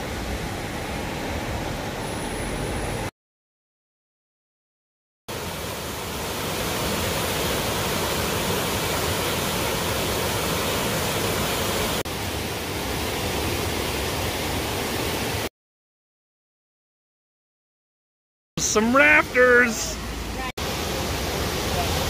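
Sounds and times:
river rushing over rapids: 5.3 - 15.5, 18.6 - 22.0.

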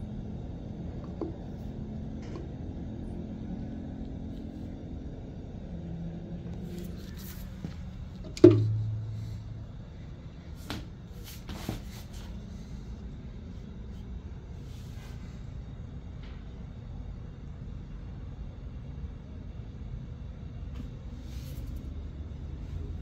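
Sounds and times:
low steady rumble: 0.0 - 23.0
low ring: 8.3 - 10.0
glass tank knocking on tile floor: 8.4 - 8.8.

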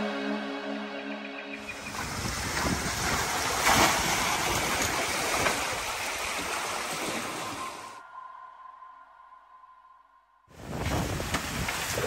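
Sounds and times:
wind noise: 1.6 - 6.4, 10.5 - 12.0
water rushing past hulls: 1.6 - 9.2.

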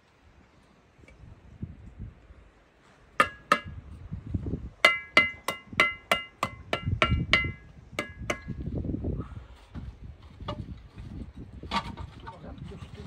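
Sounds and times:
trowel tapping bricks: 3.2 - 3.7, 4.8 - 8.6
dull knocking and scraping: 9.7 - 12.3.

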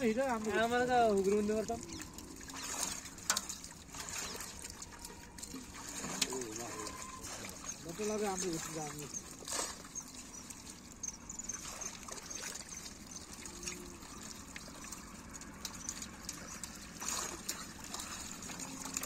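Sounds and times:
sharp splash: 0.0 - 10.0, 15.9 - 19.0
shallow water trickling and splashing: 0.0 - 19.0.

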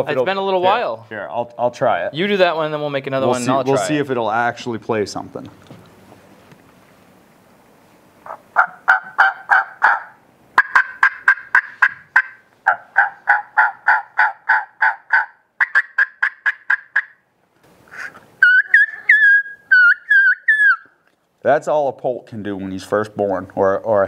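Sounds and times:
turkey mouth call yelping: 8.2 - 17.2, 17.8 - 21.0
high whistling call: 17.9 - 21.0.

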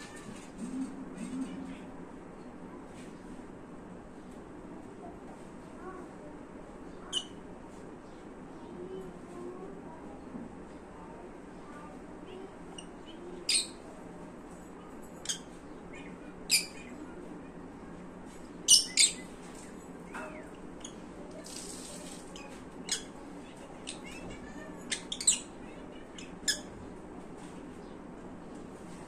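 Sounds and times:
lovebirds chirping: 18.6 - 26.8.

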